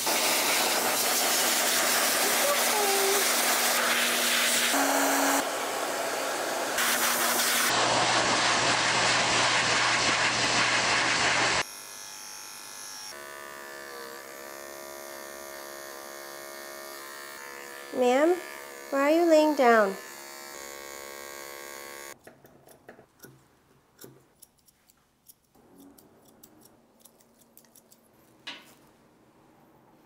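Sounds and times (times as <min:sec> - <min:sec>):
pet clipper humming: 0:00.0 - 0:08.3, 0:11.5 - 0:23.4, 0:25.6 - 0:28.0
pet dryer blowing: 0:00.0 - 0:11.7.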